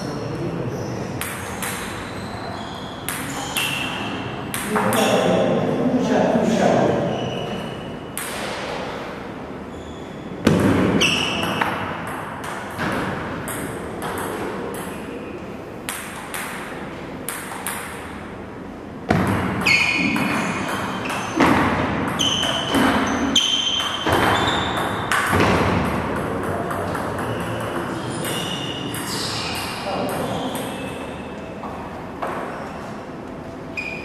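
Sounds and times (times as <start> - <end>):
table tennis ball hits: 1.2 - 2.1, 3.0 - 5.4, 8.1 - 8.8, 10.4 - 15.2, 15.8 - 18.3, 19.1 - 31.0.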